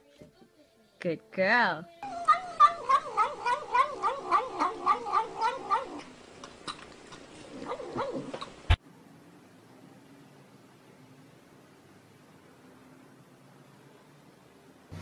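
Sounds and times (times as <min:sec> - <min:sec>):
cat eating calls: 0:02.0 - 0:08.6.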